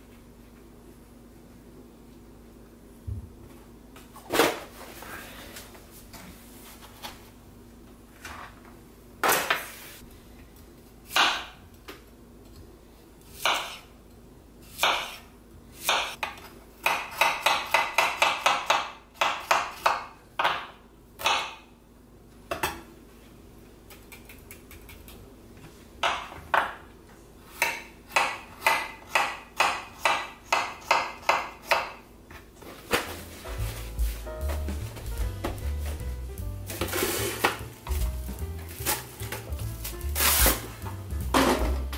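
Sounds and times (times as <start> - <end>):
knife chopping on cutting board: 13.4 - 13.8, 14.8 - 15.2, 15.8 - 21.6, 27.6 - 32.0.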